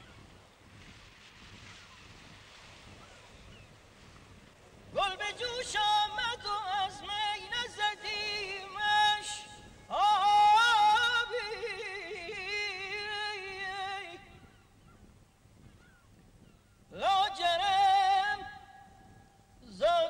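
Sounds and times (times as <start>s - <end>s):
person singing classical vocals: 5.0s - 14.4s, 17.0s - 18.8s, 19.6s - 20.0s.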